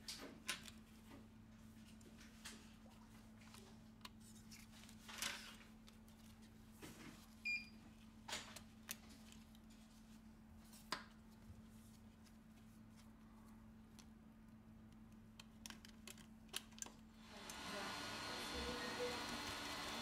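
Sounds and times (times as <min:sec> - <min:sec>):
plastic phone parts clicking: 0:15.4 - 0:17.0.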